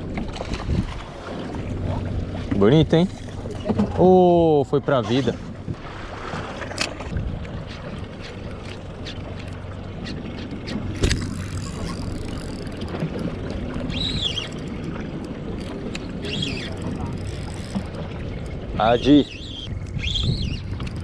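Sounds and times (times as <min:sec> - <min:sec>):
water noise: 0:00.0 - 0:21.0
wind: 0:00.0 - 0:21.0
boat engine idling: 0:07.2 - 0:21.0.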